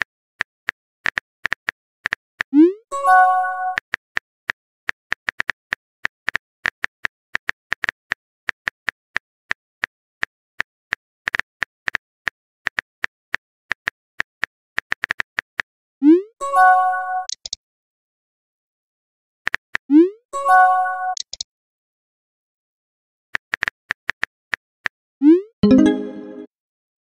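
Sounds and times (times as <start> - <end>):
message notification chime: 25.6 - 26.5.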